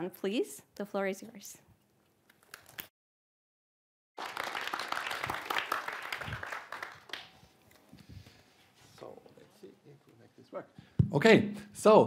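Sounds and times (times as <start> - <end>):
audience applauding: 4.2 - 7.5.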